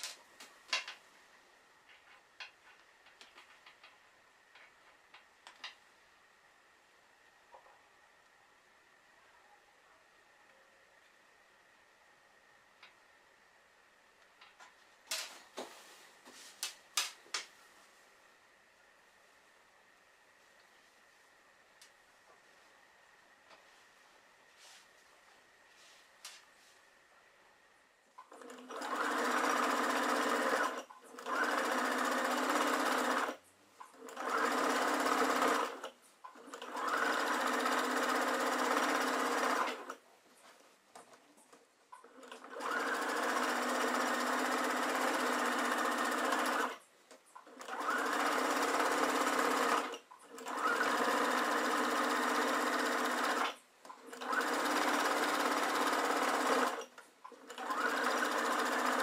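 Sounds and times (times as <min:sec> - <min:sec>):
sewing machine stitching: 0:28.2 - 0:40.0, 0:42.0 - 0:46.8, 0:47.4 - 0:59.0.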